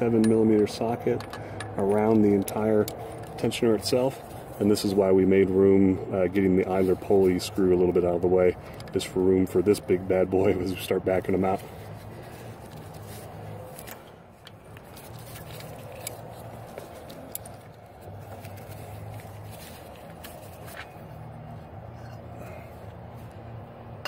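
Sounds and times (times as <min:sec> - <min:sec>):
ratchet metallic clicks and scrapes: 0:00.0 - 0:04.9.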